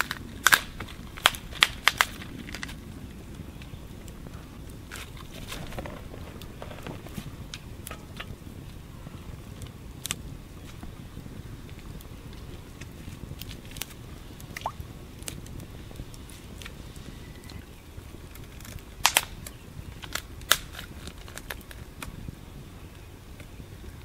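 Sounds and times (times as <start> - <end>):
low rumble: 0.0 - 18.0
campfire crackling: 0.0 - 24.0.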